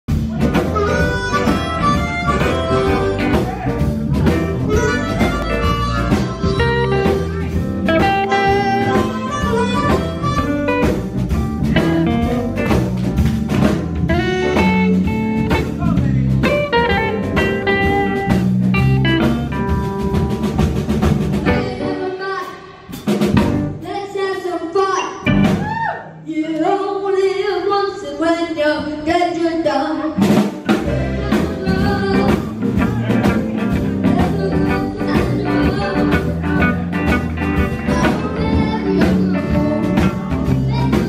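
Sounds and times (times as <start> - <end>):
live blues band playing: 0.1 - 26.0, 28.7 - 41.0
harmonica lead: 0.4 - 11.0.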